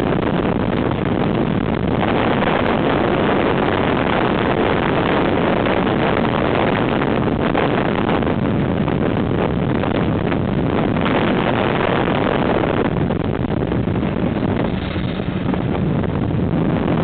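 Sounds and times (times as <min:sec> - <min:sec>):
wind rushing over microphone: 0:00.0 - 0:17.0
motorcycle engine running: 0:13.3 - 0:16.7.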